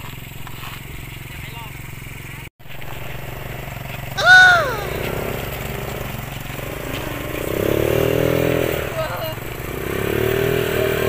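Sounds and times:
small engine idling: 0:00.0 - 0:04.2, 0:04.8 - 0:11.0
person crying out high-pitched: 0:04.2 - 0:05.0.

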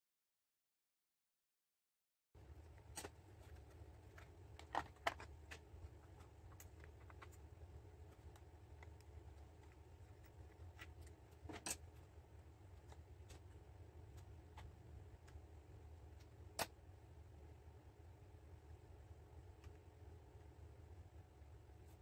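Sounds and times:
low steady hum: 0:02.4 - 0:22.0.

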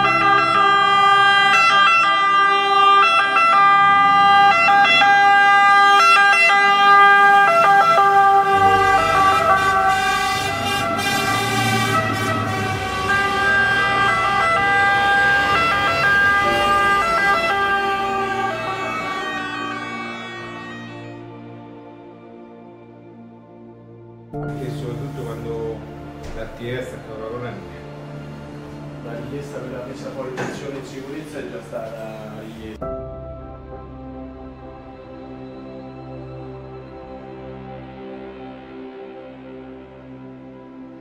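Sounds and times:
fire engine siren: 0:00.0 - 0:23.3
truck engine rumble: 0:02.3 - 0:21.6.

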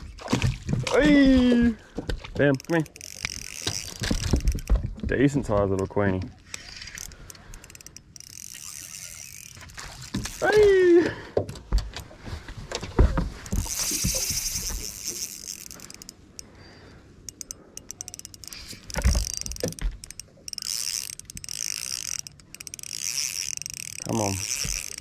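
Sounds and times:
fishing reel cranking: 0:02.5 - 0:04.7, 0:05.8 - 0:10.8, 0:13.4 - 0:25.0.

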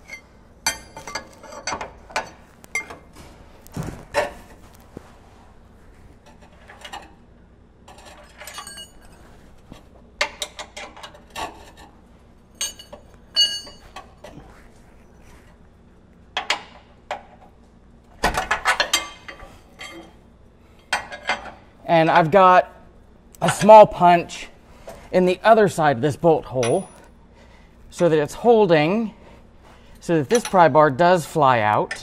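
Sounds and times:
metal clanks: 0:00.0 - 0:04.5, 0:12.6 - 0:14.4.

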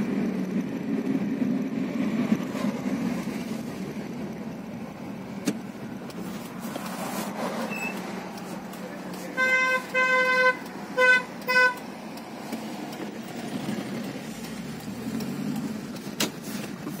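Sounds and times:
car driving hum: 0:00.0 - 0:17.0
car horn toots: 0:09.3 - 0:11.9.

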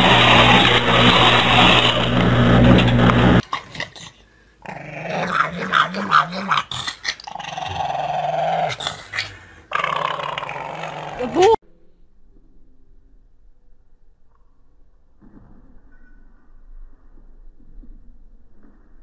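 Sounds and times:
dog growling: 0:00.0 - 0:11.6.

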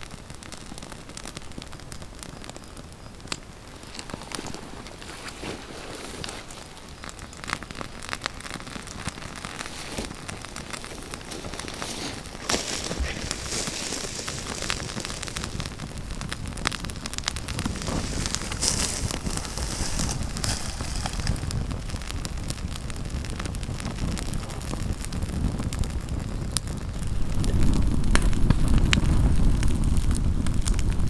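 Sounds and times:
dry twigs crackling in fire: 0:00.0 - 0:31.0.

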